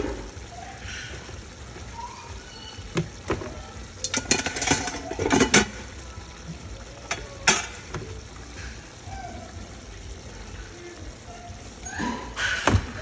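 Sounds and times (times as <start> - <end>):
sauce simmering: 0.0 - 13.0
metal utensils clattering on cookware: 3.0 - 5.9, 7.1 - 8.0.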